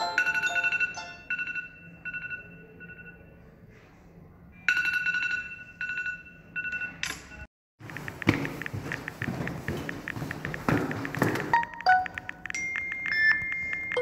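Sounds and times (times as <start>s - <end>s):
phone alarm beeping melody: 0.0s - 3.2s, 11.4s - 14.0s.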